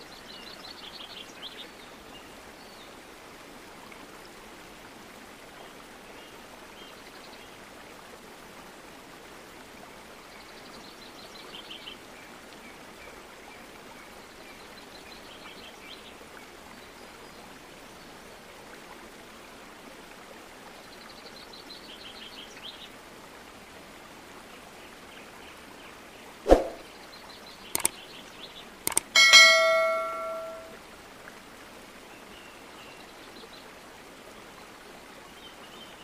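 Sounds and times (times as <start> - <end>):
small bird chirping: 27.8 - 28.0.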